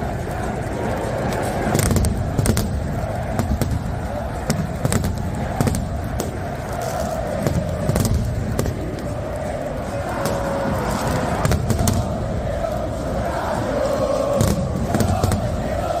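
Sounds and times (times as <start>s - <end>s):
fireworks bangs and crackles: 0.0s - 16.0s
stadium crowd din: 0.0s - 16.0s.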